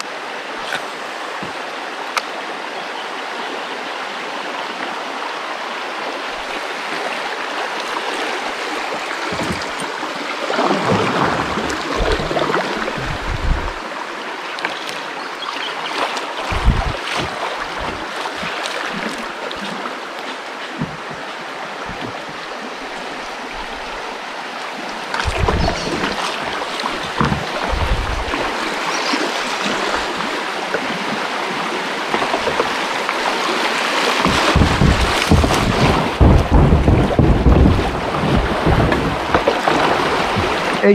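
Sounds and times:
river water rushing: 0:00.0 - 0:40.9
low thumps and buffeting: 0:11.1 - 0:13.8, 0:16.5 - 0:19.3, 0:20.8 - 0:24.1, 0:25.2 - 0:28.8, 0:34.2 - 0:40.6.

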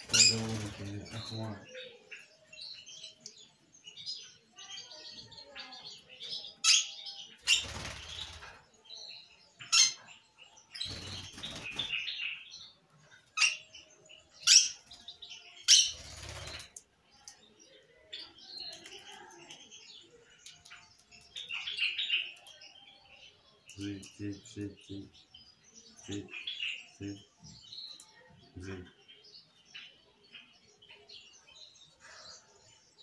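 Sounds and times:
bird chirping: 0:00.0 - 0:33.0
bird wings flapping: 0:07.5 - 0:08.5, 0:15.9 - 0:16.8.

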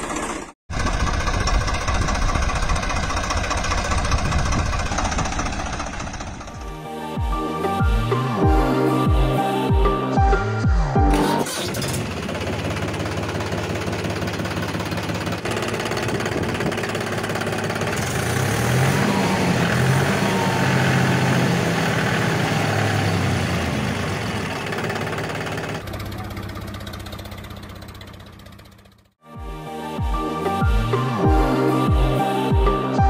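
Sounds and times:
engine idling: 0:00.0 - 0:06.8, 0:11.4 - 0:19.0, 0:19.8 - 0:29.2.

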